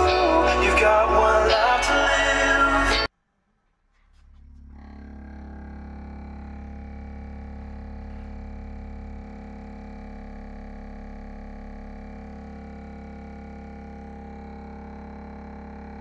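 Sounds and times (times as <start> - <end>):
deep bass tone from subwoofers: 0.0 - 3.1, 3.9 - 16.0.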